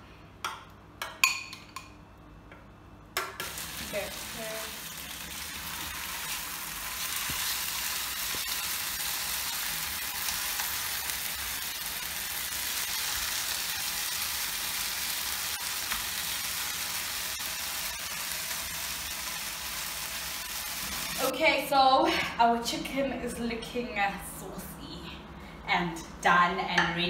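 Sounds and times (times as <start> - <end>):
chicken sizzling in a frying pan: 3.4 - 21.3.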